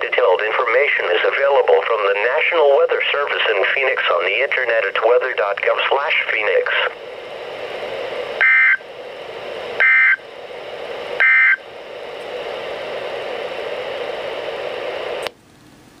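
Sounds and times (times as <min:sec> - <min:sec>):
radio hiss: 0:00.0 - 0:15.3
buzzy digital data tones: 0:08.4 - 0:08.8, 0:09.8 - 0:10.2, 0:11.2 - 0:11.6.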